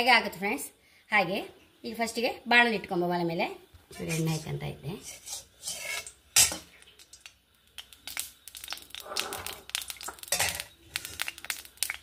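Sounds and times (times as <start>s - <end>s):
ladle clicking and scraping pan: 5.0s - 7.2s, 10.1s - 11.3s
steel utensil clanking on pan: 5.3s - 6.7s, 10.3s - 10.7s.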